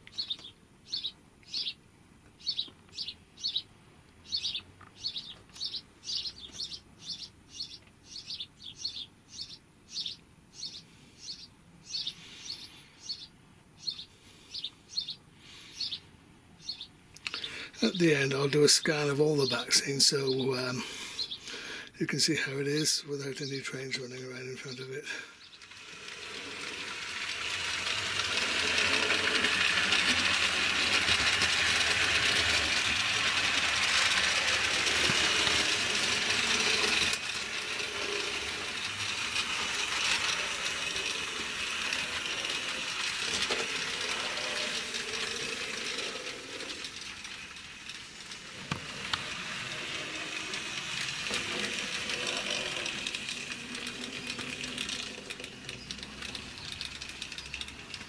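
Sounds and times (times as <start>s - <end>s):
model steam locomotive passing: 17.3s - 58.0s
model trains rattling on track: 17.3s - 58.0s.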